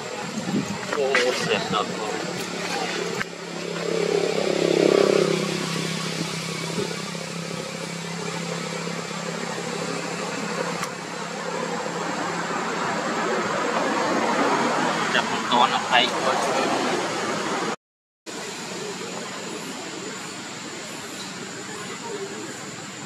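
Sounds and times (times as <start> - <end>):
vehicle engine passing by: 0.0 - 17.8
outdoor noise: 0.0 - 23.0
steady engine hum: 0.0 - 23.0.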